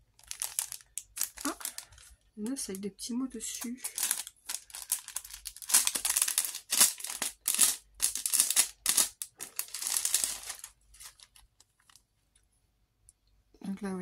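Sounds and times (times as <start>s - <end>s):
plastic bag crinkling: 0.0s - 2.8s, 3.4s - 12.1s
paper rustle: 3.6s - 12.0s.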